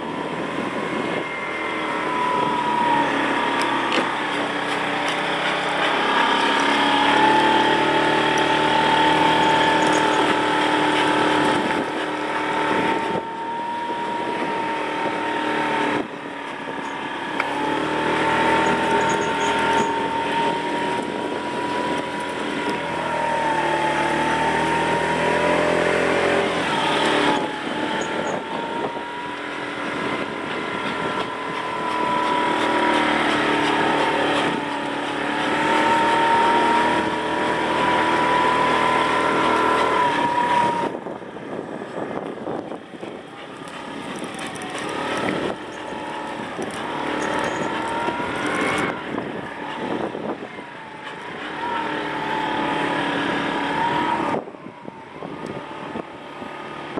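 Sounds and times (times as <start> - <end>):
motorbike engine cruising: 0.0 - 56.9.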